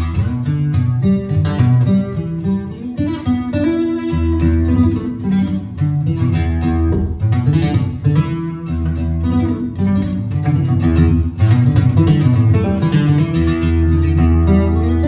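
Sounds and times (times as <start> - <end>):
acoustic guitar fast picking: 0.0 - 15.0
low bass line: 6.5 - 8.1.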